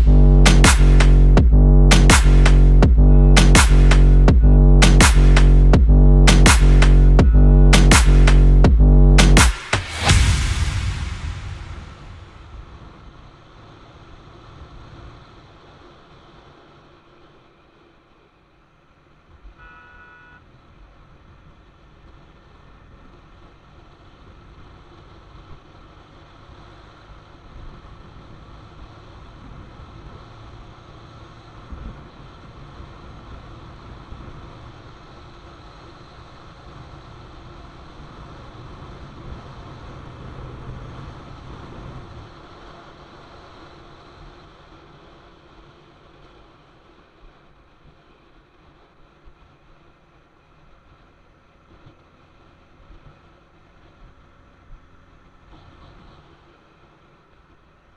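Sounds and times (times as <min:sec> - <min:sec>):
motorcycle engine running: 0:00.0 - 0:09.6
wind and road noise: 0:00.0 - 0:57.9
vehicle horn beep: 0:19.5 - 0:20.5.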